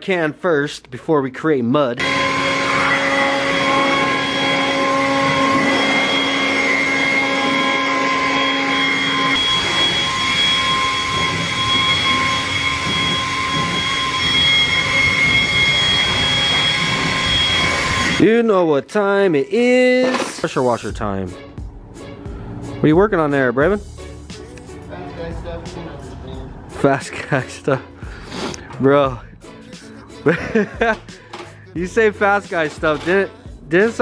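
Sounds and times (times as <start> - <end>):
electric leaf blower running: 2.0 - 18.2.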